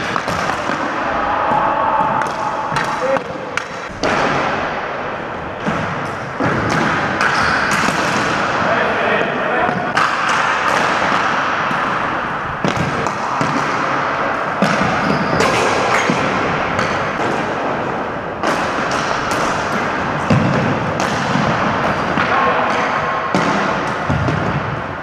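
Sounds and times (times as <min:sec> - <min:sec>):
hockey sticks clacking on ball: 0:00.0 - 0:01.6, 0:02.2 - 0:04.6, 0:05.6 - 0:24.8
steady background noise: 0:00.0 - 0:25.0.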